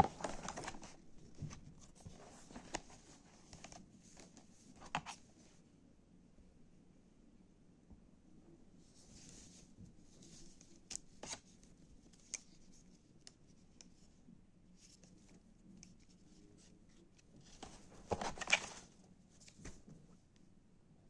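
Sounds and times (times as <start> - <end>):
packaging clicks and rustles: 0.0 - 1.0, 17.6 - 18.9
paper leaflet rustling: 0.0 - 1.0, 17.5 - 18.9.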